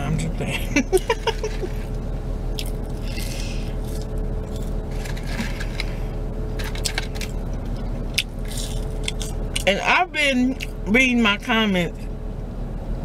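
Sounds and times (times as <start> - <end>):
low car cabin hum: 0.0 - 13.0
person chewing: 1.0 - 9.7, 10.6 - 10.8
paper carton rustling: 4.9 - 6.0.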